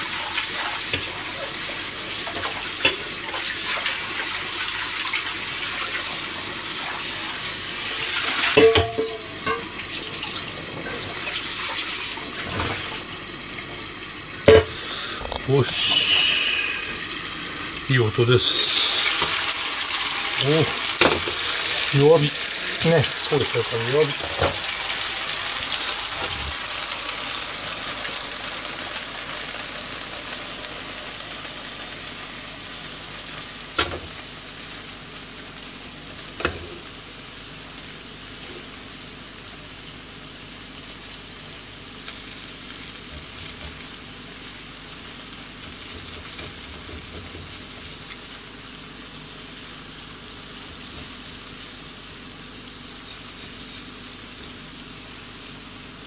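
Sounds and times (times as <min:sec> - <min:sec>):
dumplings sizzling in a frying pan: 0:00.0 - 0:56.0.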